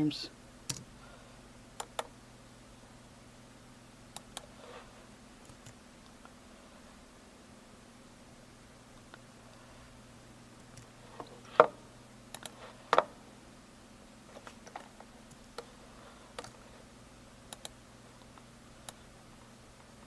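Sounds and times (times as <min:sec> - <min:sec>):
faint low hum: 0:00.0 - 0:20.0
keyboard keystrokes: 0:00.7 - 0:00.9
mouse clicks: 0:12.3 - 0:12.6, 0:17.5 - 0:19.0.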